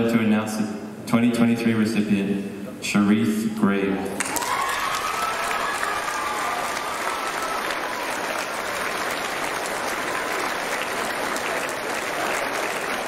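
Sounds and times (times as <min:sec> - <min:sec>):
large audience clapping: 0:04.1 - 0:13.0.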